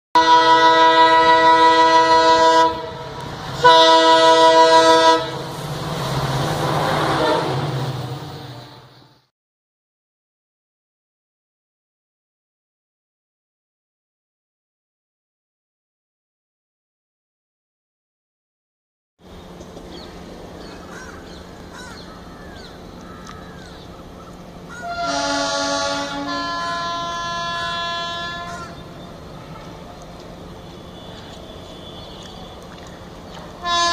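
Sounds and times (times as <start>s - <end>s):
locomotive horn blast: 0.2s - 9.3s, 24.7s - 33.9s
train running past: 0.2s - 9.3s, 19.2s - 33.9s
birds chirping: 19.2s - 24.9s, 26.6s - 33.6s.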